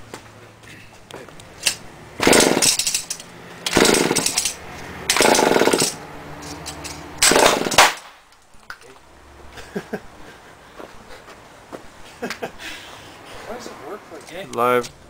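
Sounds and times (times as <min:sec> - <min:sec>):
recoil starter pulls: 0:01.6 - 0:06.0
small engine turning over: 0:01.6 - 0:07.9.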